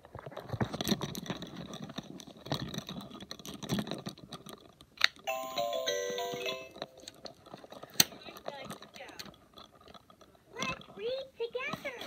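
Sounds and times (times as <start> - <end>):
plastic toy rubbing and clicking: 0.0 - 5.3, 5.9 - 12.0
electronic toy jingle: 5.3 - 6.8.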